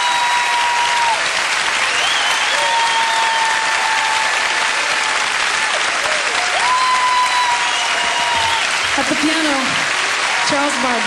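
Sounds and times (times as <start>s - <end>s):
audience applauding: 0.0s - 11.0s
long whistles: 1.8s - 3.6s, 6.9s - 8.7s.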